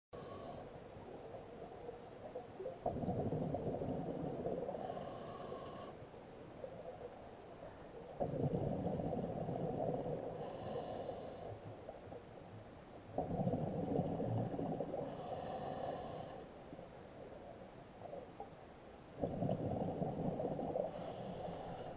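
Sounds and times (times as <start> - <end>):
regulator whistling hiss on inhale: 4.7 - 6.0, 10.4 - 11.6, 15.0 - 16.5, 20.9 - 21.9.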